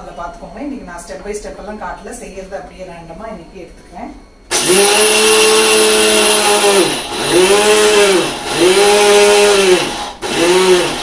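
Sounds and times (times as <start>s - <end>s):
mixer grinder motor whine: 4.5s - 11.0s.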